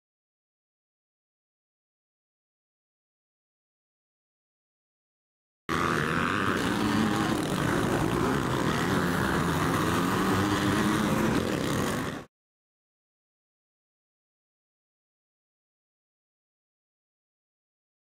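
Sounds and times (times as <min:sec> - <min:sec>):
dirt bike engines revving: 0:05.7 - 0:12.3.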